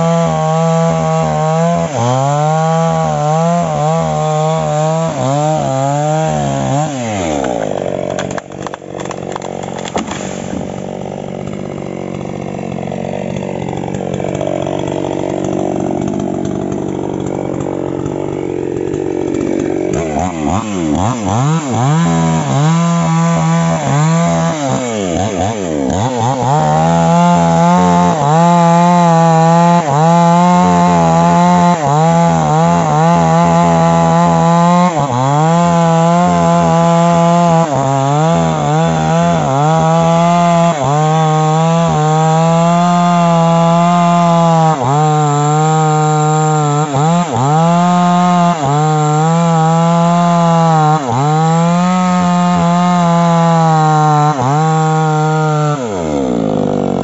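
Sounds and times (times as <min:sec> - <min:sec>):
chainsaw cutting wood: 0:00.0 - 0:57.0
chainsaw idling: 0:00.0 - 0:57.0
chainsaw revving: 0:00.0 - 0:57.0.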